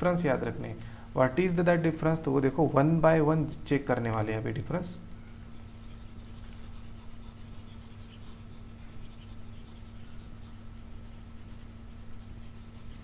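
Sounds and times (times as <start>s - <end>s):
low electrical hum: 0.0s - 13.0s
stylus scratching on tablet: 5.4s - 13.0s.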